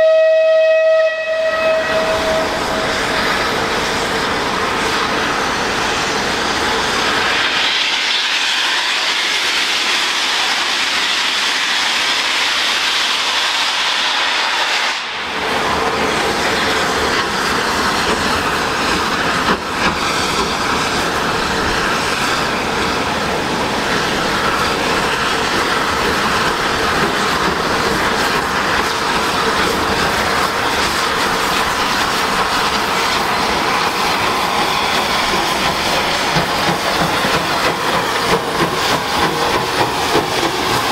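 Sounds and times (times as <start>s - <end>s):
steam hissing: 0.0s - 40.9s
train rail noise: 0.0s - 40.9s.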